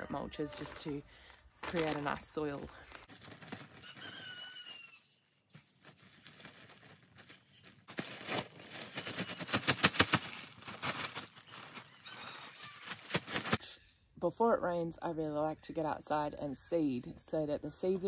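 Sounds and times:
mulch crackling out of plastic bag: 0:01.6 - 0:13.6.

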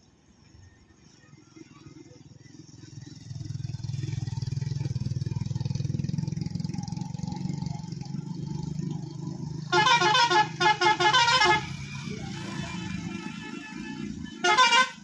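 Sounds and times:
motorcycle engines running: 0:01.3 - 0:15.0
truck multi-tone horn blasts: 0:09.6 - 0:15.0.

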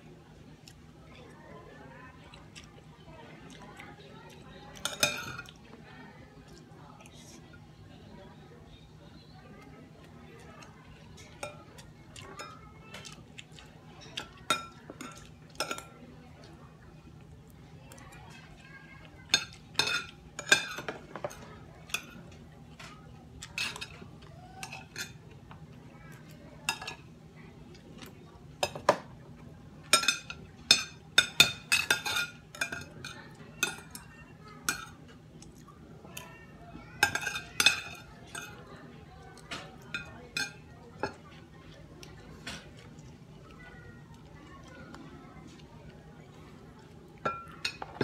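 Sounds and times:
cutlery clinking on dishes: 0:04.7 - 0:05.6, 0:10.4 - 0:16.0, 0:19.2 - 0:25.3, 0:26.7 - 0:27.0, 0:28.6 - 0:29.2, 0:29.8 - 0:38.8, 0:39.4 - 0:41.3, 0:47.2 - 0:48.0.

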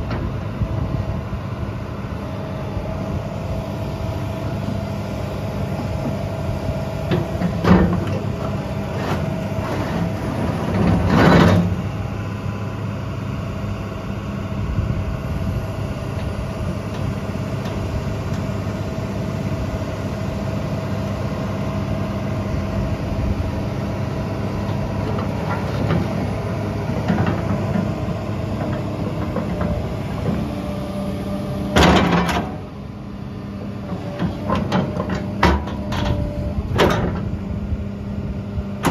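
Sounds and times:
diesel excavator engine idling: 0:00.0 - 0:38.9.

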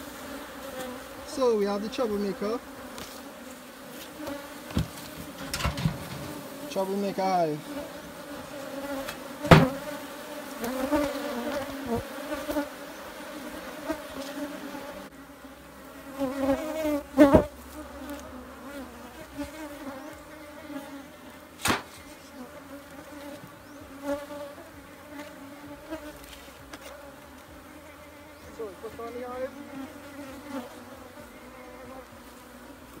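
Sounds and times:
bees buzzing: 0:00.0 - 0:33.0
knocks on wooden hive boxes: 0:04.7 - 0:06.4, 0:09.1 - 0:09.9.

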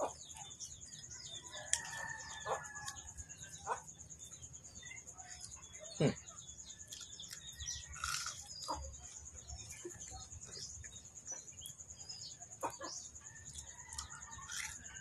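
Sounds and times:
bird calls and clucks: 0:00.0 - 0:15.0.

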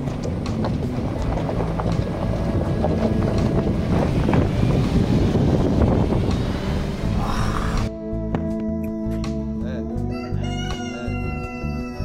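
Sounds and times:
stones crunching under tyres: 0:00.0 - 0:07.8
wind buffeting microphone: 0:00.0 - 0:07.9
road rumble: 0:00.0 - 0:12.0.

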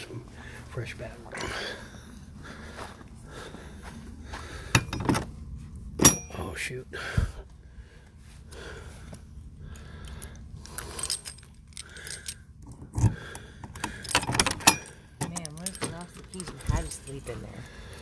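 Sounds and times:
soft footsteps: 0:02.3 - 0:04.7
keys jangling in a lock: 0:04.7 - 0:05.3, 0:10.2 - 0:18.0.

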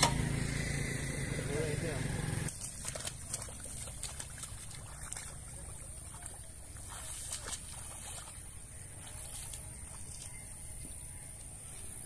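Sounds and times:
footsteps splashing in water: 0:02.5 - 0:10.9.

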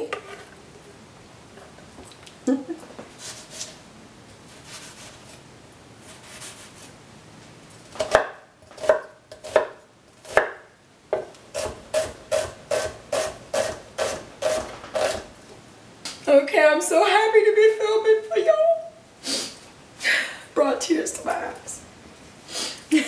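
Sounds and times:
knife chopping onion on wooden board: 0:08.0 - 0:15.2.

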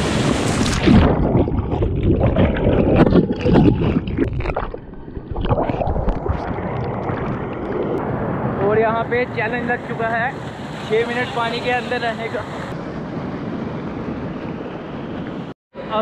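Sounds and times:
stream water splashing and gurgling: 0:00.0 - 0:08.2.

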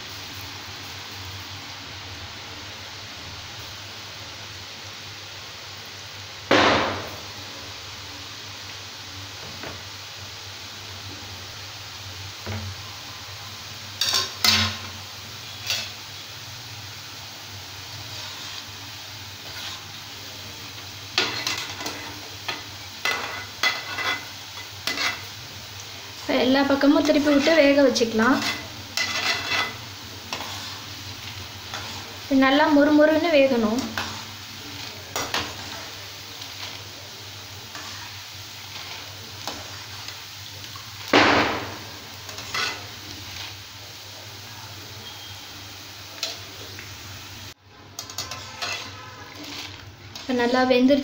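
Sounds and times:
batter sizzling in hot oil: 0:00.0 - 0:51.0
metal ladle scraping pan: 0:18.1 - 0:18.7, 0:19.4 - 0:20.0, 0:21.2 - 0:25.3, 0:26.9 - 0:32.1, 0:37.7 - 0:40.2, 0:41.6 - 0:43.5, 0:48.0 - 0:50.6.

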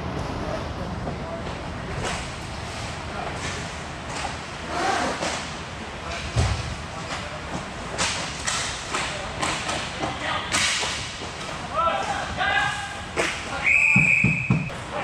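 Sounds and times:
hockey sticks and puck clacking: 0:03.3 - 0:14.9
players shouting: 0:11.7 - 0:14.1.

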